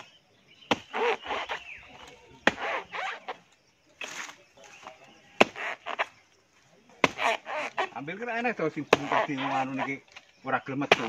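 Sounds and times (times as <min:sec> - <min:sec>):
hand tool chopping palm: 0:00.6 - 0:03.3, 0:05.4 - 0:06.1, 0:07.0 - 0:08.0, 0:08.8 - 0:09.8.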